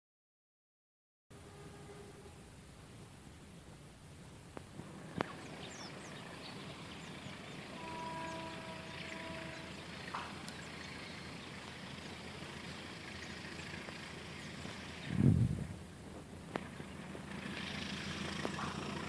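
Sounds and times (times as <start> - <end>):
distant train horn: 1.3 - 2.8, 7.3 - 12.0
outdoor background noise: 1.3 - 19.0.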